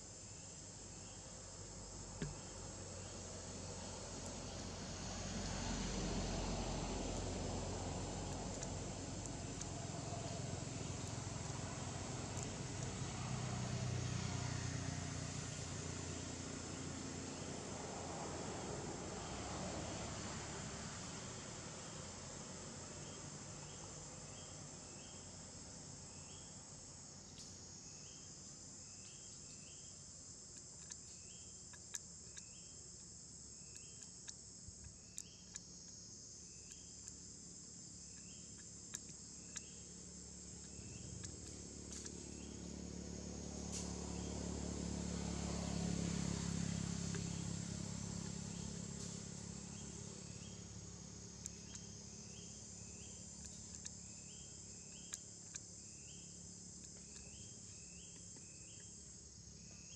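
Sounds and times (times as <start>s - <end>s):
insects chorus: 0.0s - 59.9s
sharp ticks: 8.3s - 9.9s, 30.4s - 42.7s, 47.0s - 50.6s, 51.4s - 59.1s.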